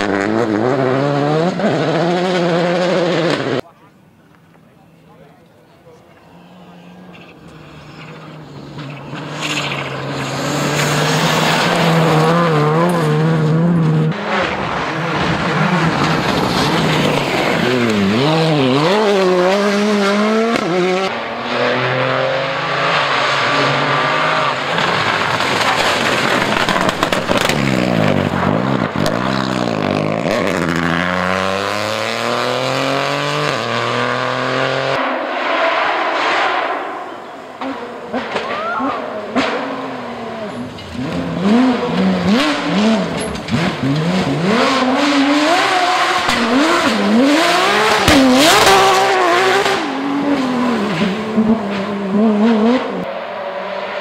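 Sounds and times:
rally car engines revving: 0.0 - 3.9, 4.9 - 54.0.

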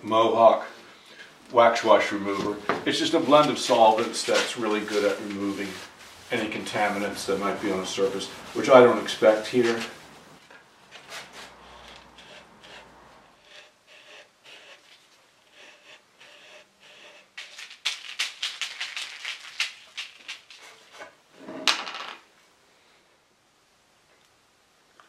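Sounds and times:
plastic cups clicking and scraping: 17.2 - 21.0.

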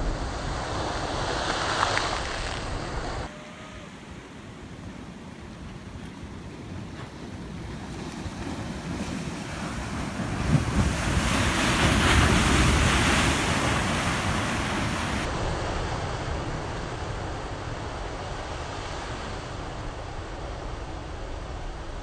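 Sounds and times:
ocean waves crashing on rocks: 4.0 - 17.6
wind buffeting microphone: 5.5 - 18.0.

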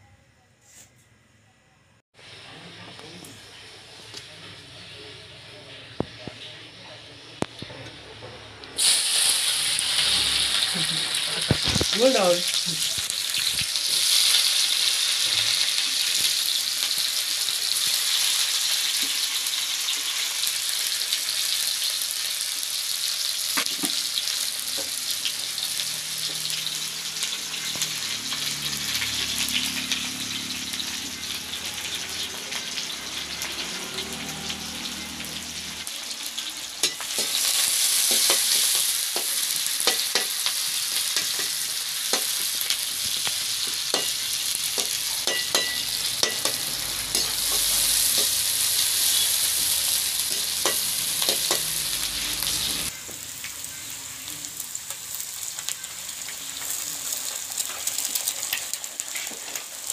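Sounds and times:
onions sizzling in oil: 2.2 - 7.6, 8.7 - 59.9
spatula scraping wok: 36.8 - 54.1, 57.4 - 59.9.

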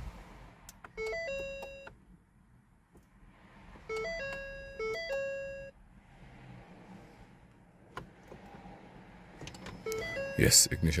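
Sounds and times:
dashboard warning chime: 0.9 - 2.0, 3.9 - 5.8, 9.7 - 11.0.

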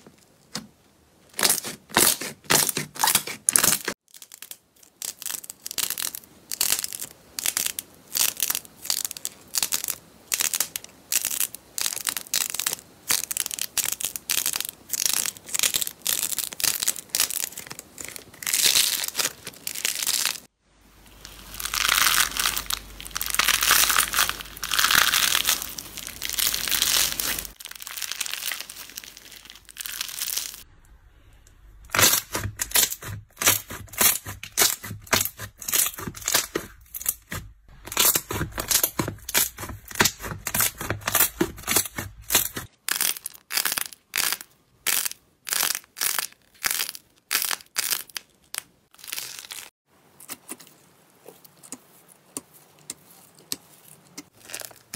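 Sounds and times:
slime crackling and popping: 1.3 - 20.5, 21.1 - 30.7, 31.9 - 50.6, 53.4 - 54.9.

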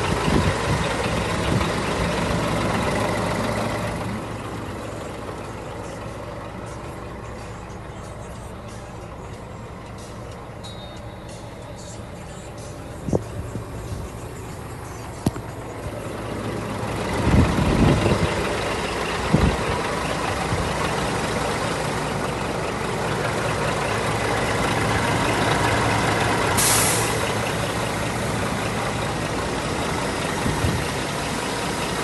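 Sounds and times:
diesel engine idling: 0.0 - 32.0
short air hiss: 26.6 - 27.2.

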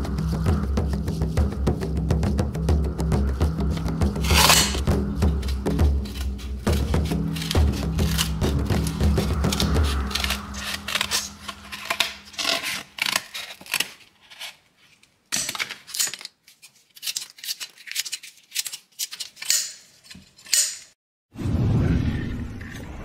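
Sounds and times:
shears cutting cardboard: 3.6 - 14.7
shears slicing cloth: 3.7 - 14.5.

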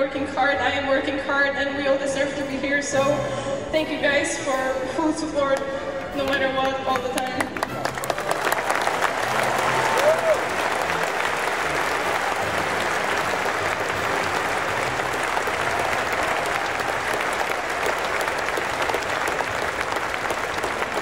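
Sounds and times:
stadium crowd applauding: 6.0 - 21.0.

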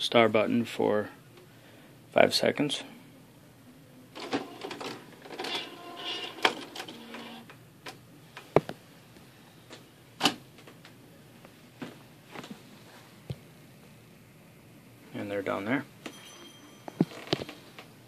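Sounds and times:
printer mechanism whirring and clicking: 4.2 - 8.0.

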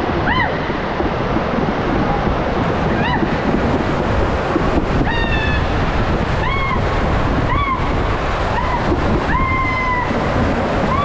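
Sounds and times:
water rushing: 0.0 - 11.0
wind buffeting microphone: 0.0 - 11.0
riders shrieking: 6.3 - 11.0.

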